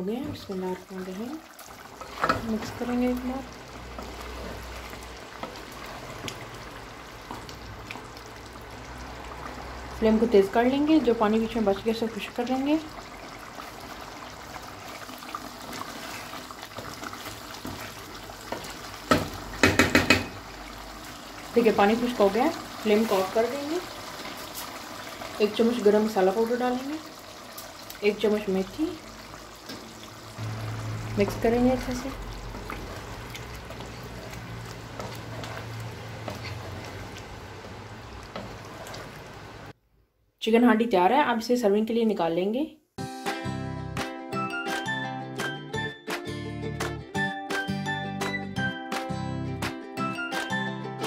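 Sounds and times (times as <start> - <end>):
curry bubbling in a pot: 0.8 - 39.8
wooden spoon stirring: 14.8 - 20.3, 31.2 - 39.4.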